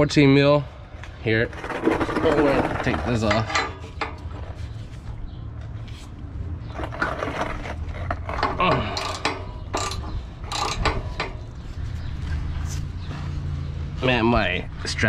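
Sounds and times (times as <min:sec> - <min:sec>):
ratchet wrench clicking: 0:08.9 - 0:11.4.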